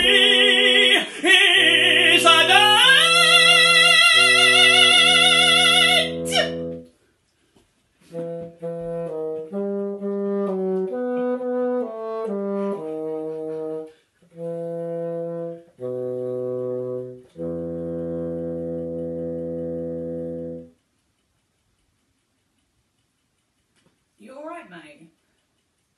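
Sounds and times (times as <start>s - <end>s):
solo bassoon playing: 1.6s - 6.9s, 8.1s - 20.7s.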